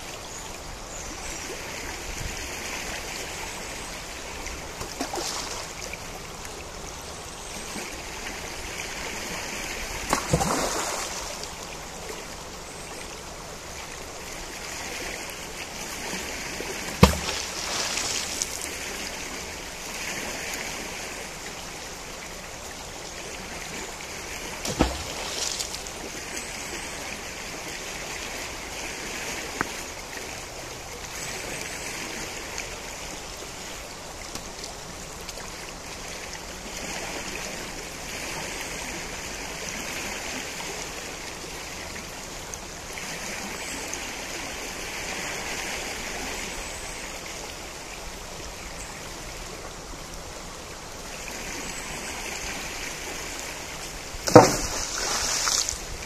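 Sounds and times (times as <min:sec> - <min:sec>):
river flowing: 0:00.0 - 0:56.0
sharp knock: 0:54.3 - 0:54.8.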